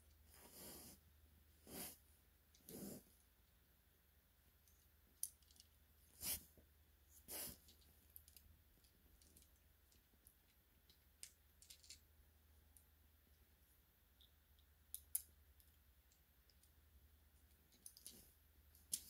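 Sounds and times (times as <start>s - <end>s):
soft rustles: 0.2s - 1.0s.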